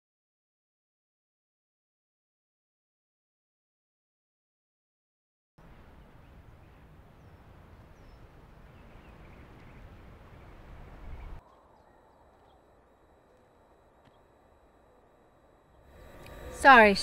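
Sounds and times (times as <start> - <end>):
quiet hiss: 5.6 - 17.0
faint bird chirps: 6.0 - 17.0.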